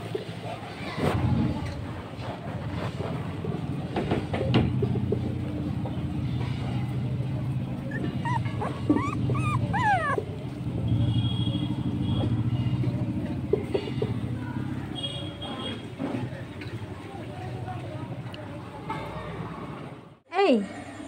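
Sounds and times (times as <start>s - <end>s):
puppies whimpering and yipping: 7.8s - 10.7s.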